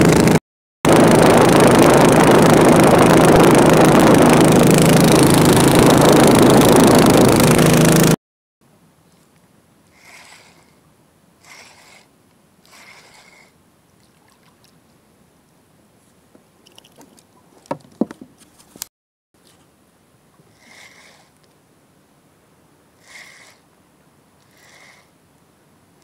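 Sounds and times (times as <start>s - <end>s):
fishing reel whirring: 9.9s - 10.8s, 11.4s - 13.5s, 20.6s - 21.3s
knocks and taps against boat: 17.0s - 18.4s.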